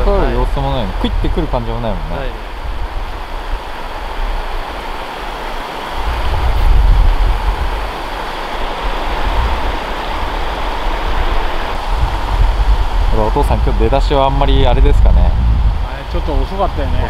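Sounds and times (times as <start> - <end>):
river water rushing over rocks: 0.0 - 17.0
low rumble on microphone: 6.0 - 7.8, 11.8 - 17.0.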